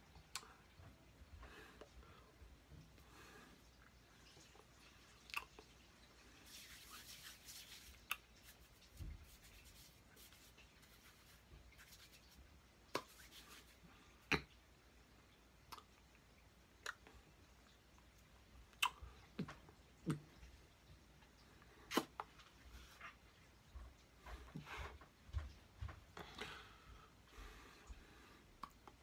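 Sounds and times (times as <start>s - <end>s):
rustle of hands and clothing: 6.2s - 14.1s.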